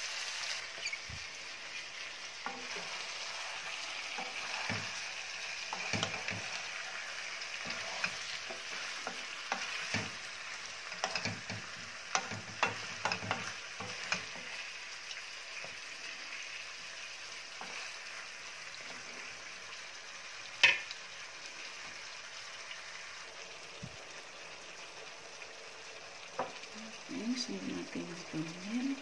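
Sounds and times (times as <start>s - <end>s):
chicken sizzling in oil: 0.0s - 29.0s
wooden spatula knocking pan: 4.2s - 5.0s, 5.7s - 6.6s, 7.6s - 10.3s, 10.9s - 14.6s, 20.6s - 20.8s.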